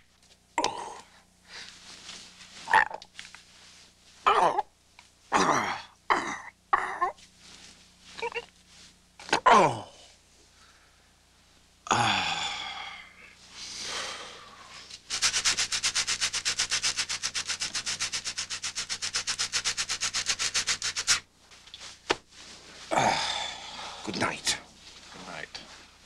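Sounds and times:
breathy sounds: 0:11.9 - 0:14.8, 0:22.8 - 0:24.2
person scratching hard: 0:15.1 - 0:21.2.

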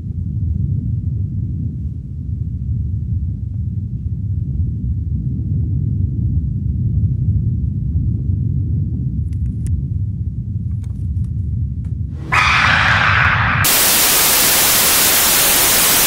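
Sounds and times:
low rumbling drone: 0:12.2 - 0:16.0.

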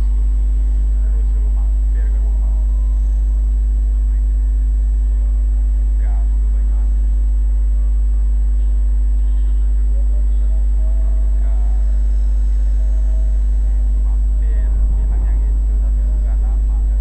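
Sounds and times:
constant hum: 0:00.0 - 0:17.0
faint distant voices: 0:00.0 - 0:17.0
low street rumble: 0:00.0 - 0:17.0.

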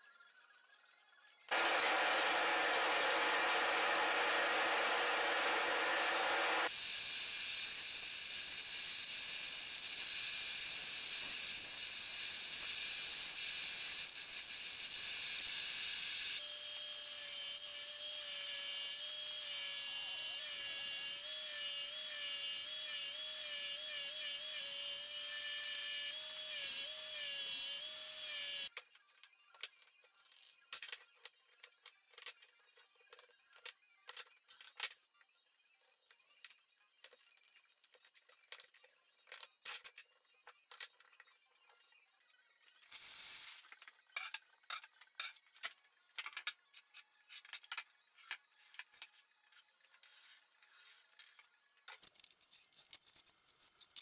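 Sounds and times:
bandsaw cutting wood: 0:01.5 - 0:06.7, 0:16.2 - 0:28.7
power tool motor whine: 0:01.5 - 0:06.8, 0:25.0 - 0:28.7.

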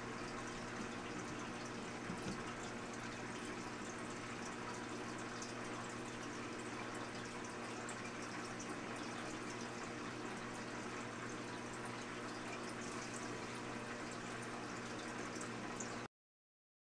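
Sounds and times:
aquarium water bubbling and trickling: 0:00.0 - 0:16.1
low steady hum: 0:00.0 - 0:16.1
water drips and pops: 0:00.8 - 0:02.8.

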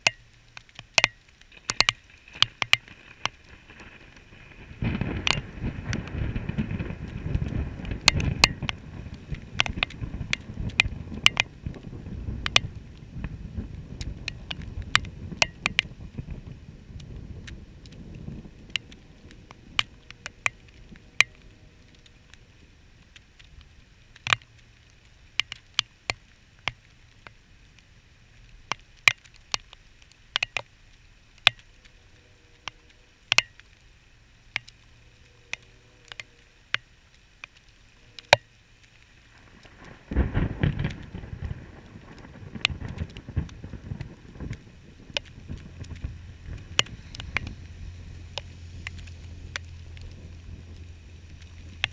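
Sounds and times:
raindrops ticking on camera: 0:00.0 - 0:51.9
deep rumble of thunder: 0:04.3 - 0:21.8, 0:39.4 - 0:51.8.

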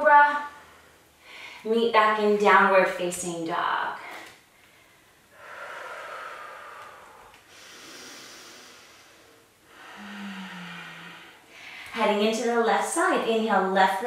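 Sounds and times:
woman breathing: 0:00.5 - 0:01.7, 0:04.1 - 0:12.0.

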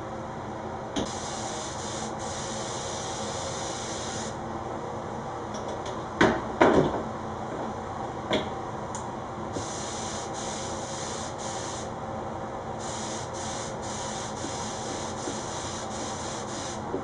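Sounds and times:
spray gun hissing: 0:01.1 - 0:04.4, 0:09.6 - 0:11.9, 0:12.8 - 0:16.9.

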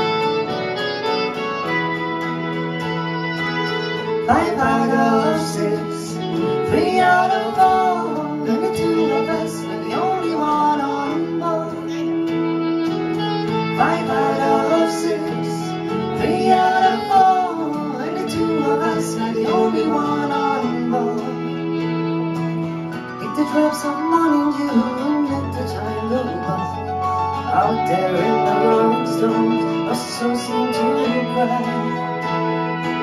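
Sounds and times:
held keyboard chord: 0:00.0 - 0:33.0
reed woodwind: 0:00.0 - 0:33.0
strummed guitar: 0:00.0 - 0:33.0
woman singing: 0:04.3 - 0:12.5, 0:13.5 - 0:22.0, 0:27.5 - 0:33.0.

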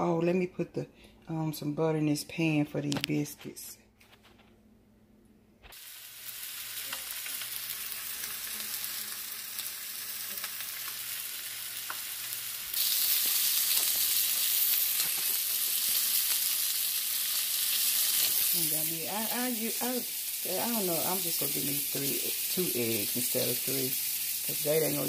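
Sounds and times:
sausages sizzling in a pan: 0:05.7 - 0:25.0.

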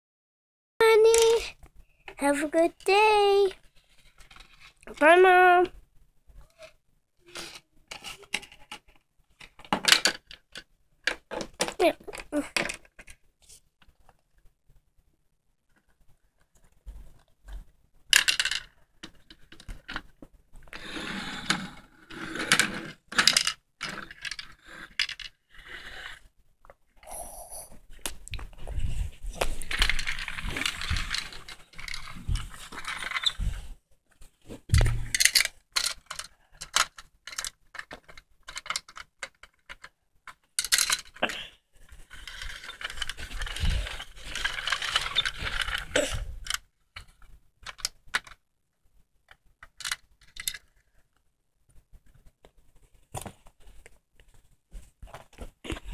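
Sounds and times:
plastic toys clicking and clattering: 0:00.8 - 0:05.6, 0:06.5 - 0:14.2, 0:18.0 - 0:26.2, 0:29.4 - 0:33.6, 0:34.7 - 0:48.4, 0:49.2 - 0:51.2.

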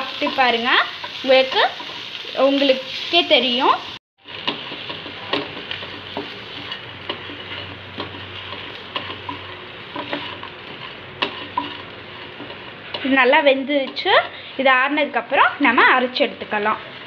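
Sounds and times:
leaves sizzling in a frying pan: 0:00.0 - 0:17.0
wooden spatula scraping a pan: 0:04.2 - 0:13.3.

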